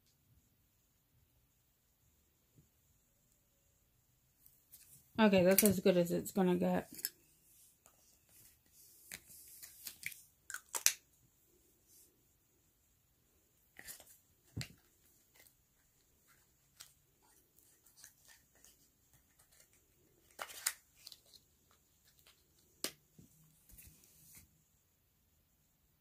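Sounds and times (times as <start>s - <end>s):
small plastic items clicking: 9.9s - 11.0s.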